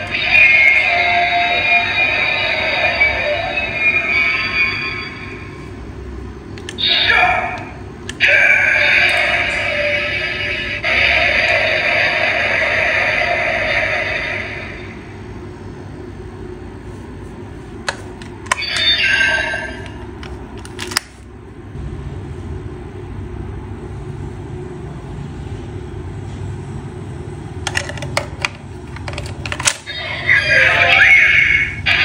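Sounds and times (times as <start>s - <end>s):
toy electronic sound effect: 0.0s - 5.6s, 6.7s - 14.8s, 18.5s - 20.0s, 29.8s - 32.0s
low steady hum: 0.0s - 32.0s.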